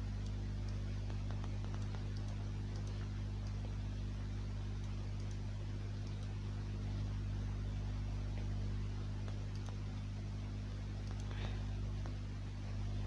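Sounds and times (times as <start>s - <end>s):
low electrical hum: 0.0s - 13.0s
faint clicks: 0.2s - 3.7s, 4.8s - 5.4s, 6.0s - 6.4s, 9.2s - 10.0s, 11.0s - 12.2s.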